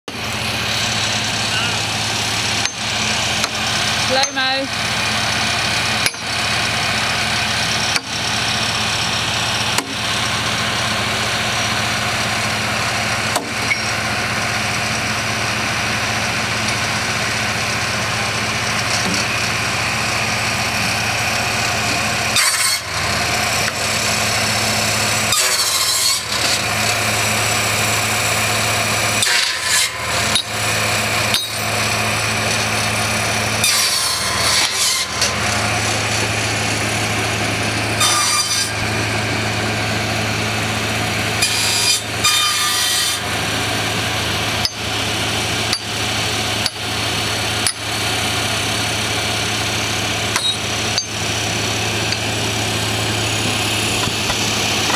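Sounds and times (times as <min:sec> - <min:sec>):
machine cutting timber: 0:00.0 - 0:54.9
tractor engine running: 0:00.0 - 0:54.9
wood being struck: 0:09.7 - 0:10.0, 0:13.3 - 0:13.9, 0:53.8 - 0:54.9.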